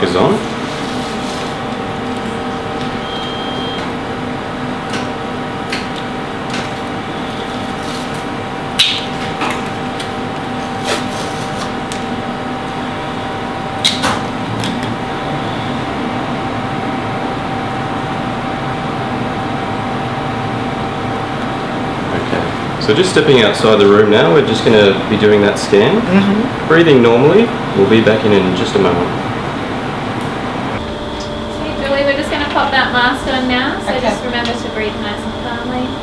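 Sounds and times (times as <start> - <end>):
steady mechanical hum: 0.0 - 36.0.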